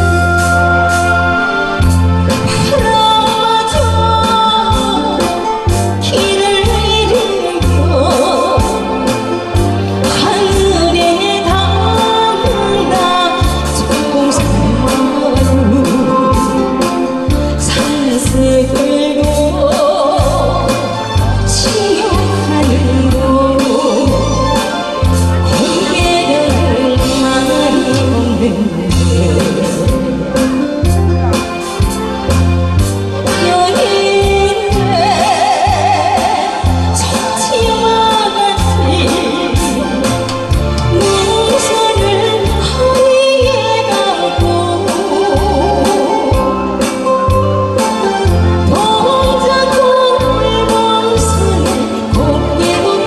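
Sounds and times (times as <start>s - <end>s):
pulsing bass line: 0.0s - 9.0s
person singing: 0.0s - 31.8s, 33.3s - 53.0s
bass and drum backing track: 0.0s - 53.0s.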